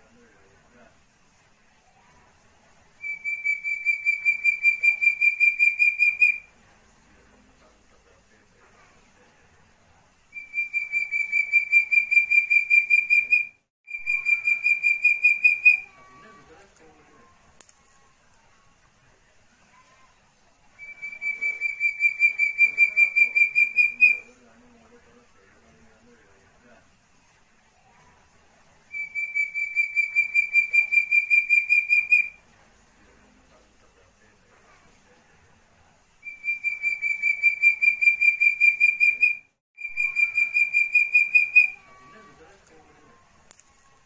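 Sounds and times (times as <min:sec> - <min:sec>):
partridge whistled call: 0:03.0 - 0:06.5, 0:10.3 - 0:16.3, 0:20.8 - 0:24.3, 0:28.9 - 0:32.4, 0:36.2 - 0:42.2.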